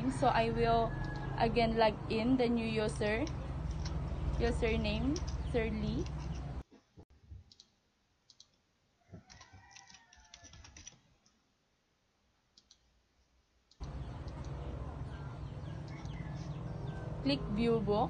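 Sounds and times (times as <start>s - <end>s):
keyboard typing: 3.2s - 6.6s, 8.3s - 8.6s, 9.3s - 11.4s.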